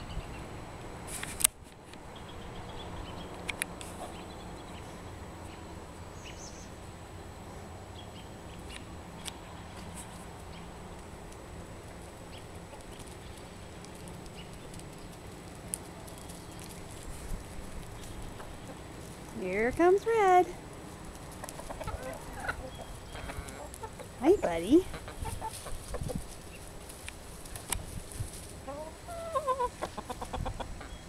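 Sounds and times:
low background noise: 0.0 - 31.0
chickens clucking: 11.8 - 31.0.

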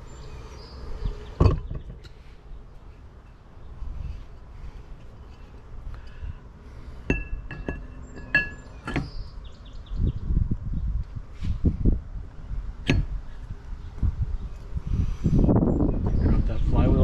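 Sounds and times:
metal clinking: 7.1 - 9.3.

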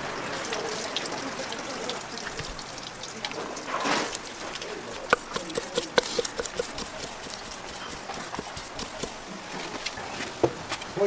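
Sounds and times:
knife chopping on wooden board: 5.1 - 9.2.

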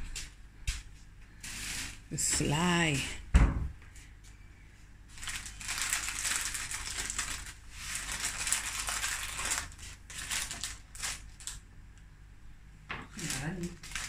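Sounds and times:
plastic bag crinkling: 5.1 - 11.6, 13.1 - 14.0.

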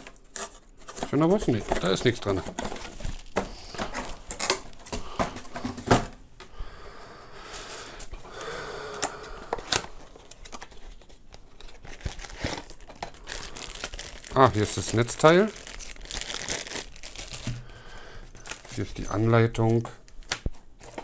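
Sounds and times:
cardboard rustling and scraping: 0.0 - 6.2.

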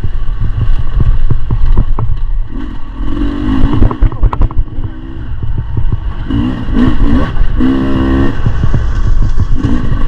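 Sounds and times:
knocks and clatter: 0.5 - 2.4, 3.6 - 4.7
dirt bike engine revving: 2.4 - 10.0.

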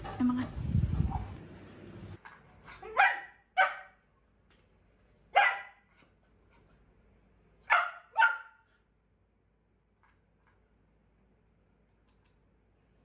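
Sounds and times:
dog barking: 2.8 - 4.0, 5.3 - 5.9, 7.7 - 8.7.

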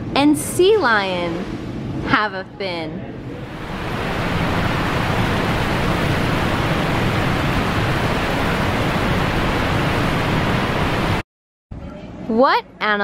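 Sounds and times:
water rushing: 3.2 - 11.2.

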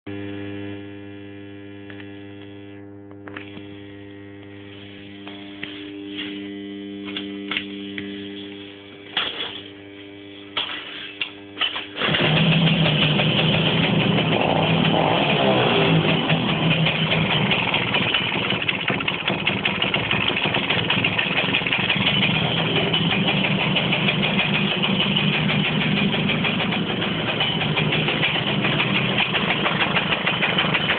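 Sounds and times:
moped engine starting and running: 10.6 - 30.9.

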